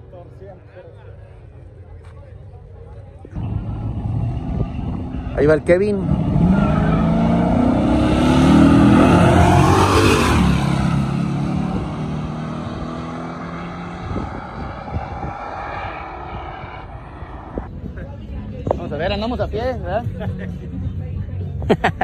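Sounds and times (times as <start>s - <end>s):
drag racing cars accelerating: 3.4s - 17.8s.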